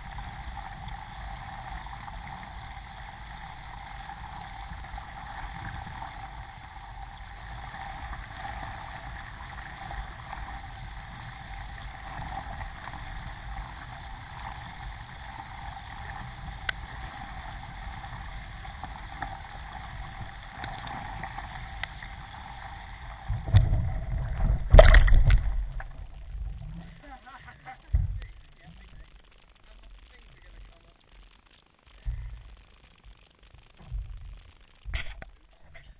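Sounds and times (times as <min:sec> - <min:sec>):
water rushing along kayak hull: 0:00.0 - 0:29.1
low rumbling buffeting: 0:00.0 - 0:31.3.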